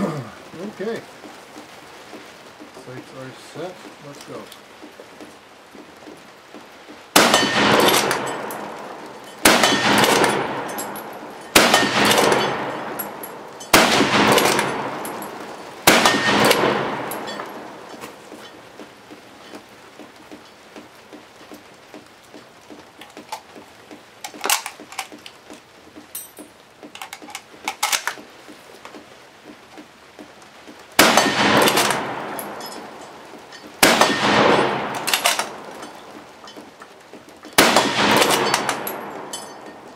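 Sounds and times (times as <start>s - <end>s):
rifle shots with echo: 7.1s - 18.3s, 31.0s - 33.2s, 33.8s - 36.1s, 37.6s - 39.6s
rifle reloading clicks: 7.2s - 8.6s, 9.4s - 18.4s, 24.2s - 25.6s, 26.9s - 28.3s, 31.0s - 36.6s, 37.5s - 39.8s.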